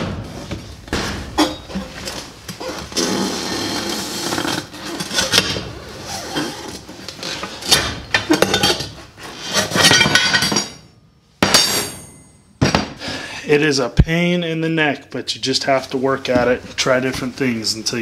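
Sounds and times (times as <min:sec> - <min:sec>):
metal scraping against rubber: 0:01.4 - 0:10.6
sharp metal clanks: 0:09.7 - 0:12.8.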